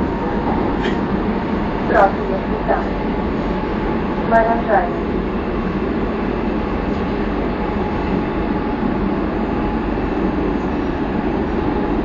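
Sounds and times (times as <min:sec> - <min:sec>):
metro train rumbling through tunnel: 0:00.0 - 0:12.0.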